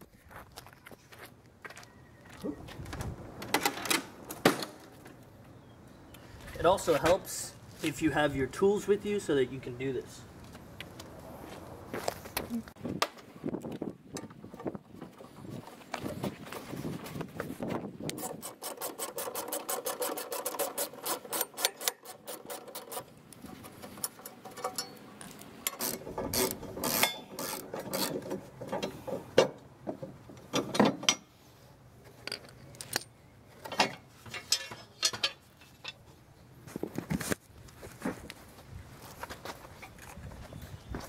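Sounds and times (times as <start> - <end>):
metal clanks on concrete: 23.8 - 25.1, 33.6 - 36.0.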